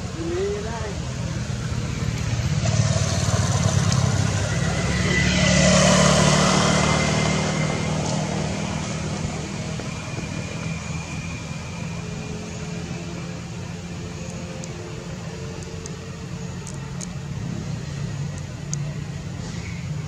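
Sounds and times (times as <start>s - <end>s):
low hum of traffic: 0.0s - 20.0s.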